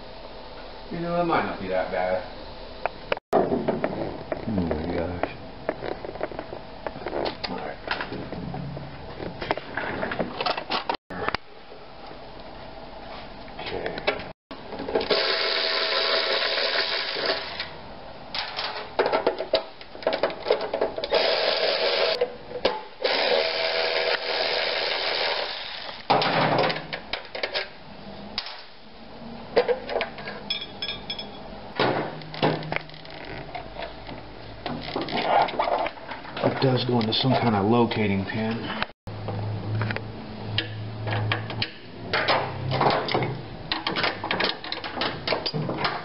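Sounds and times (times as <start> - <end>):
motorcycle parts scraping and knocking: 3.4 - 11.4, 32.1 - 36.7.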